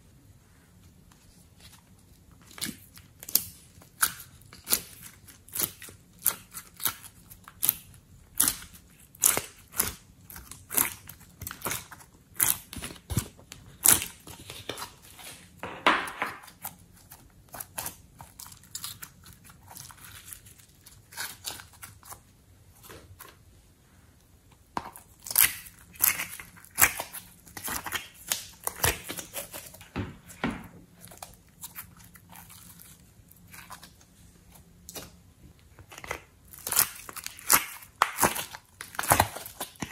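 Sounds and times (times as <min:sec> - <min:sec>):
sticky slime clicks and crackles: 0:02.4 - 0:14.9, 0:35.9 - 0:39.9.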